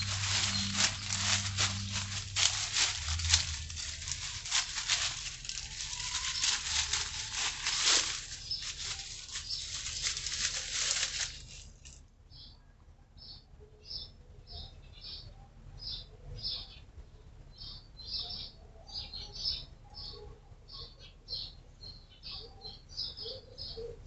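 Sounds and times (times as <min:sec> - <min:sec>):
bird chirping: 0:00.0 - 0:11.5, 0:17.6 - 0:24.0
rustling of leaves and twigs: 0:00.0 - 0:12.0.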